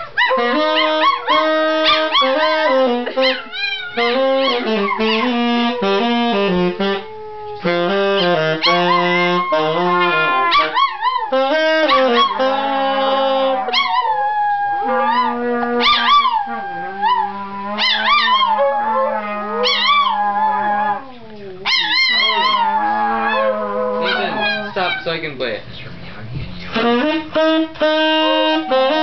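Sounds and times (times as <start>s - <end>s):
saxophone playing: 0.0s - 25.0s, 26.6s - 29.0s
distant dog howling: 13.5s - 25.1s
small dog howling: 13.5s - 25.1s.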